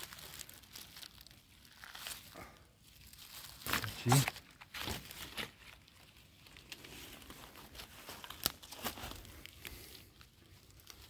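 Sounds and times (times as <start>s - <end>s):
leaf litter rustling: 0.0s - 11.0s
twigs snapping: 3.1s - 6.9s, 7.8s - 9.9s.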